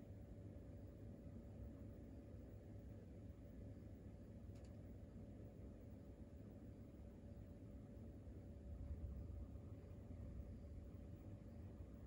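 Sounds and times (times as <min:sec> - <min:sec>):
low steady hum: 0:00.0 - 0:12.0
faint ticks: 0:04.5 - 0:04.8.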